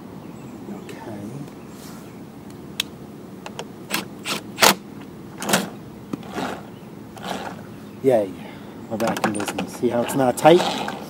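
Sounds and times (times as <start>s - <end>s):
mower wheel clacking and scraping: 5.4s - 7.7s, 9.0s - 11.0s.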